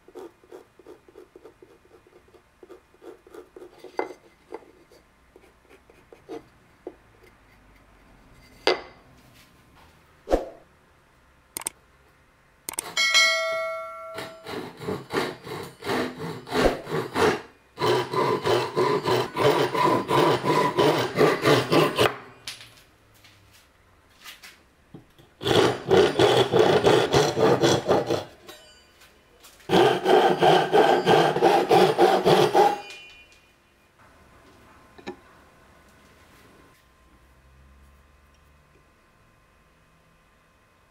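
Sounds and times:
brief metallic ring: 0:13.0 - 0:14.4, 0:32.8 - 0:33.6
hand saw rasping through wood: 0:14.2 - 0:22.2, 0:25.4 - 0:28.4, 0:29.7 - 0:32.9.

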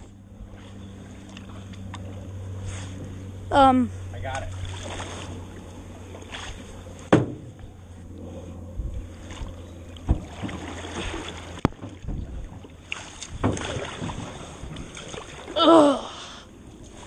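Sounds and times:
paddle strokes in water: 0:04.5 - 0:07.2, 0:08.0 - 0:15.6
paddle knocking against canoe: 0:07.1 - 0:07.6, 0:10.0 - 0:14.2.

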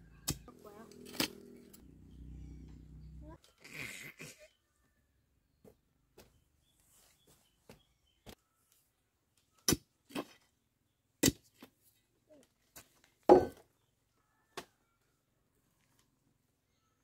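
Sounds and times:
metal bar thudding into earth: 0:13.3 - 0:13.6.

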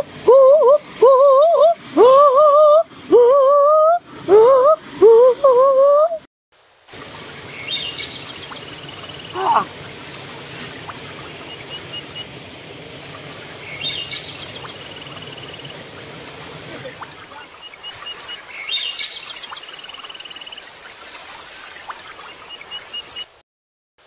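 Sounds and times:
birds chirping: 0:07.0 - 0:23.4.

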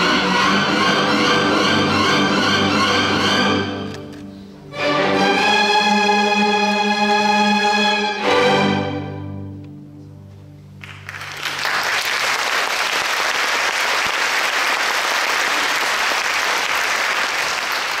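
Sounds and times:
audience applause: 0:10.8 - 0:18.0.

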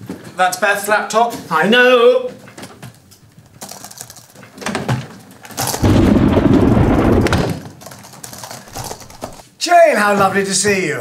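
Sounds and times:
sharp crack: 0:05.5 - 0:09.4
loud low rumble: 0:05.8 - 0:07.6.

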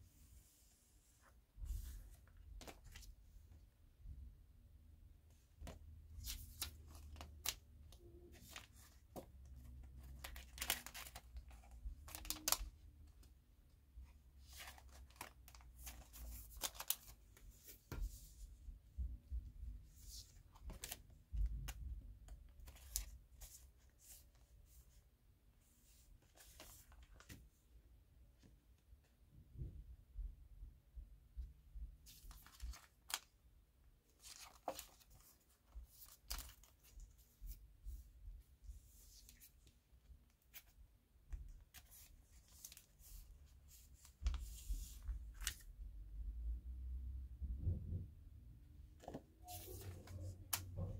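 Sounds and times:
photo prints rustling and sliding: 0:14.4 - 0:18.2, 0:49.0 - 0:50.9.

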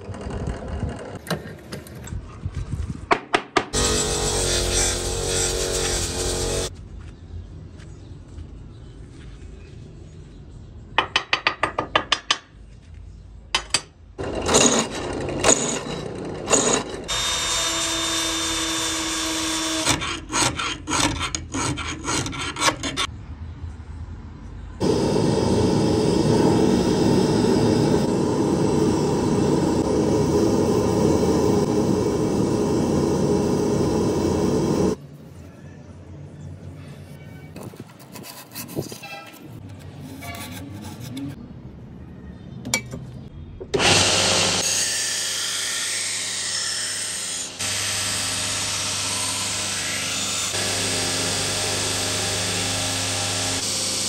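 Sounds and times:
power tool whining: 0:03.8 - 0:06.7, 0:14.2 - 0:20.2, 0:24.8 - 0:35.0, 0:43.8 - 0:44.8, 0:47.6 - 0:54.0
scraping strokes on metal: 0:03.8 - 0:06.7, 0:36.9 - 0:41.4.

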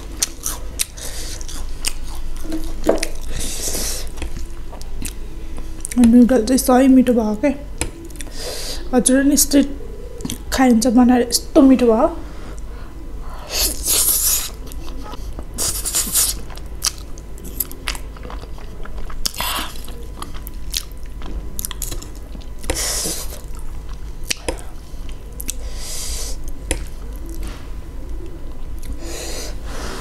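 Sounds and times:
chewing and wet mouth clicks: 0:04.2 - 0:05.2, 0:16.4 - 0:22.8, 0:23.5 - 0:25.6.

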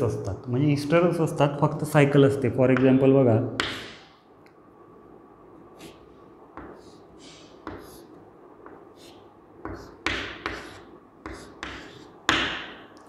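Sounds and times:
chalk tapping and scraping on board: 0:06.6 - 0:12.8.

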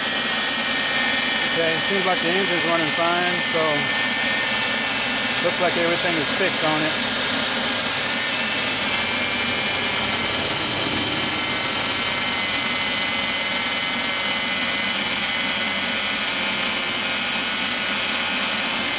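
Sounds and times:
thin high whine: 0:00.0 - 0:18.6
car engine idling: 0:01.4 - 0:14.3.

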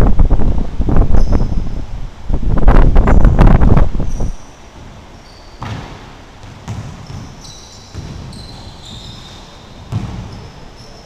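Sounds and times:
sneaker squeaks: 0:01.1 - 0:01.6, 0:04.1 - 0:11.0
basketball bouncing on wooden floor: 0:05.6 - 0:10.4.

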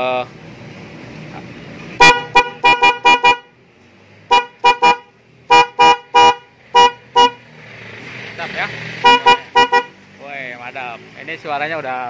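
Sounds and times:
electric horn toots: 0:09.0 - 0:10.0.

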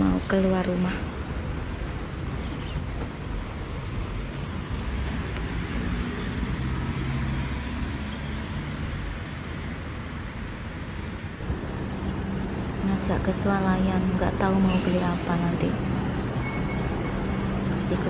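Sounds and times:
city road traffic: 0:00.0 - 0:18.0.

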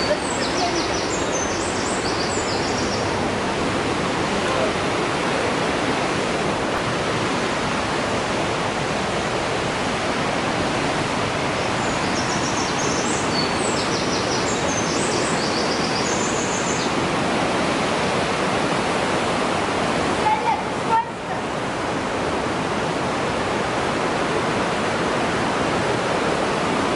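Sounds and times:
river rapids roaring: 0:00.0 - 0:26.9.

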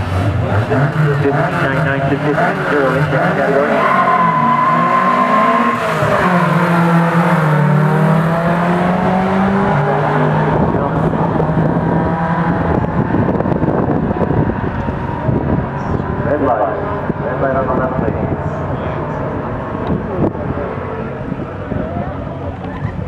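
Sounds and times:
pickup truck engines accelerating hard: 0:00.0 - 0:23.0.

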